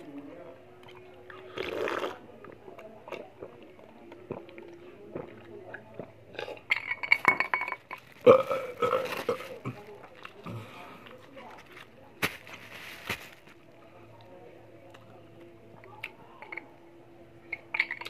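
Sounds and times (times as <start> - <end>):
glass clinking: 6.7 - 8.1, 17.5 - 18.0
voiced throat sounds: 8.2 - 9.5
person gulping: 8.2 - 9.8.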